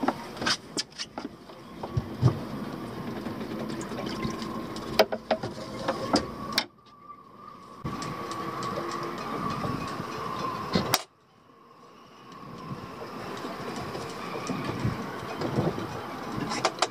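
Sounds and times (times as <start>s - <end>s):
steady background hum: 0.0s - 16.9s.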